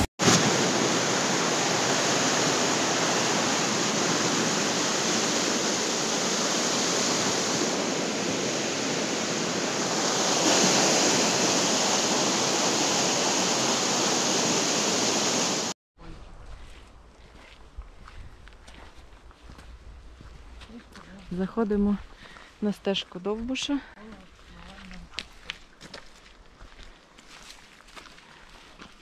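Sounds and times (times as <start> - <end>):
fast-flowing river water rushing: 0.2 - 15.7.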